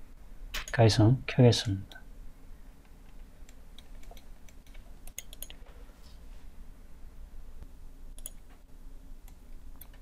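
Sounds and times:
steady low hum: 0.0s - 10.0s
computer mouse clicks: 2.8s - 5.6s, 8.2s - 8.6s, 9.2s - 10.0s.

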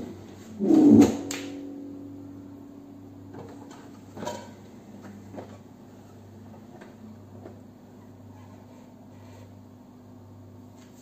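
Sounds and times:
low ringing tone: 0.6s - 4.6s.

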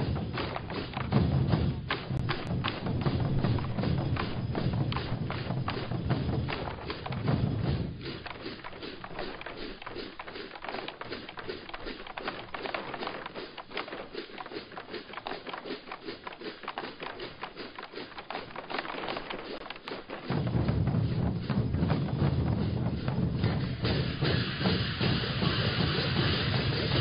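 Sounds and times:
deep barrel drum beat: 0.0s - 27.0s
hand cymbals clashing: 20.3s - 27.0s.

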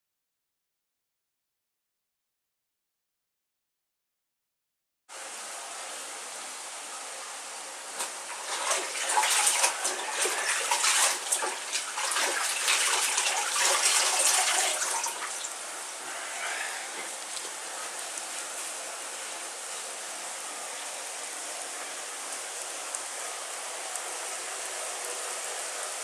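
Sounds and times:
tap running into washbasin: 8.0s - 15.6s
water splashing face washing: 8.0s - 15.6s.

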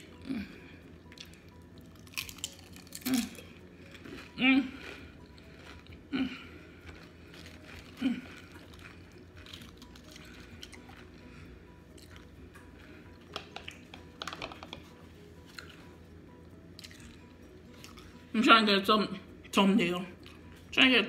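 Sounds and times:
person chewing: 0.0s - 16.1s, 16.7s - 18.3s
tortilla chips clicking and crackling: 1.1s - 11.2s.

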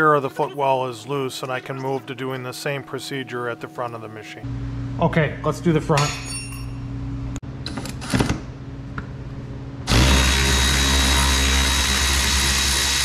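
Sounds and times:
steady low hum: 0.0s - 13.0s
cordless drill motor running: 9.9s - 13.0s.

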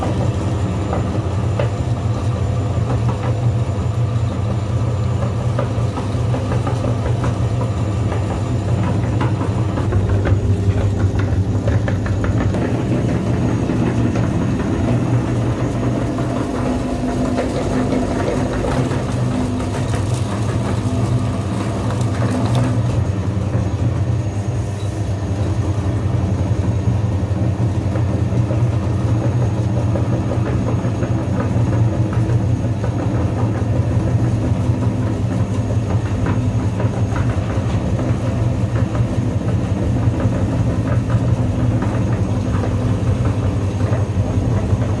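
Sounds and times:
soap crackling through grinder: 0.0s - 24.1s
meat grinder motor hum: 0.0s - 45.0s.

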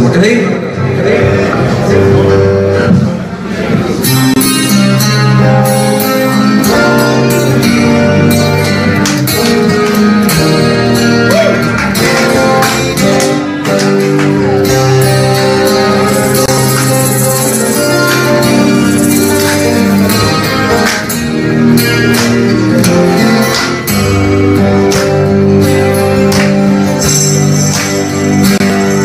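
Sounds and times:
acoustic guitars playing: 0.0s - 29.0s
hand percussion: 24.8s - 29.0s.

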